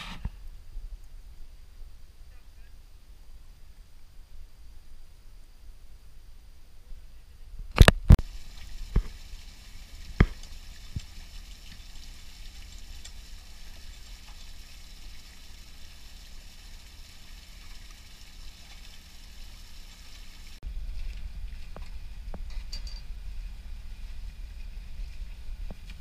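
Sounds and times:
water gushing and splashing: 7.8 - 20.6
pump motor running: 8.2 - 20.6.

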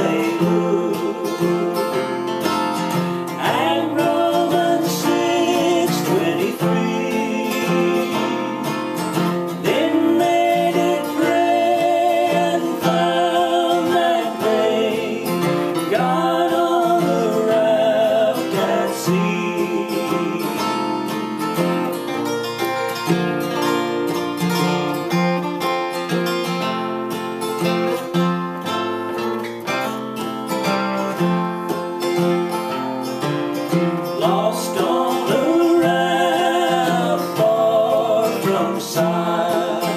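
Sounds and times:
men singing in harmony: 0.0 - 21.8, 34.0 - 39.9
acoustic guitars strumming: 0.0 - 39.9.

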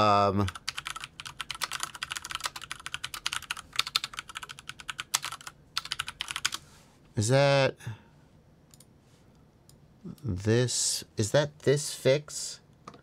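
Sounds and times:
computer keyboard typing: 0.4 - 6.6.

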